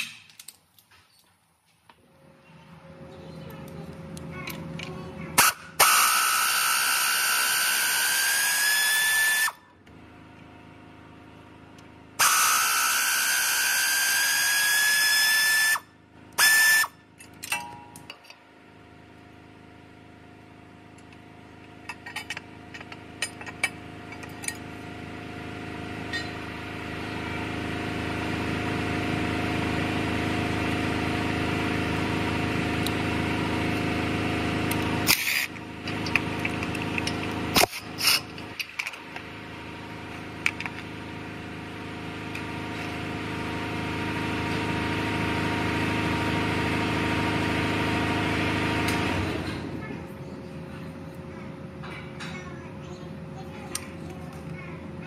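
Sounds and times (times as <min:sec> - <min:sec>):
tool handling clicks: 0:00.0 - 0:01.4
power ratchet motor whine: 0:05.4 - 0:09.8, 0:11.7 - 0:17.1.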